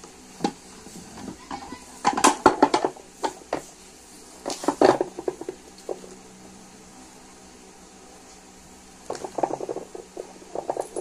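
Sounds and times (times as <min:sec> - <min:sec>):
plastic and metal parts clattering: 0:04.4 - 0:06.0, 0:09.1 - 0:11.0.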